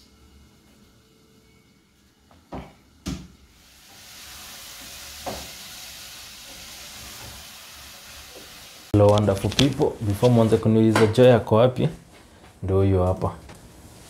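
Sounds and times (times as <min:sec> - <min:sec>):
food sizzling in a pot: 0:03.4 - 0:09.0.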